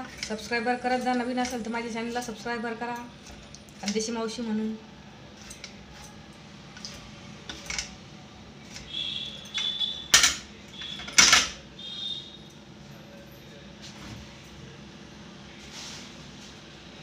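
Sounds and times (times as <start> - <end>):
steel utensils clinking and clattering: 0.0 - 4.1, 5.4 - 8.0, 8.6 - 11.6.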